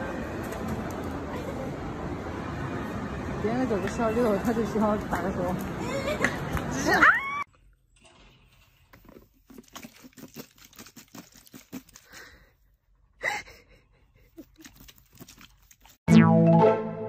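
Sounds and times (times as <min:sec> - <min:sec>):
plastic bottle crinkling: 0:09.1 - 0:12.2.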